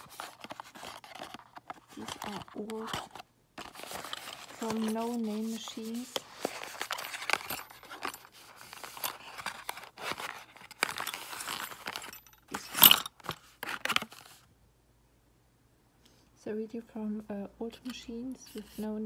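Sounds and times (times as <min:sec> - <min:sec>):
metal parts clinking together: 0:06.5 - 0:09.6, 0:10.2 - 0:13.3.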